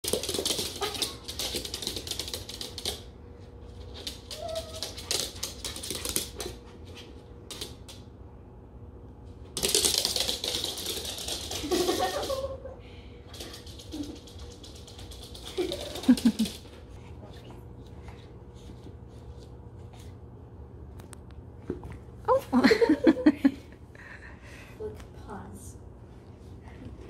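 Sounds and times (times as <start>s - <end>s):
dog claws clicking on wood floor: 0.0s - 3.1s, 3.8s - 6.6s, 9.6s - 12.2s.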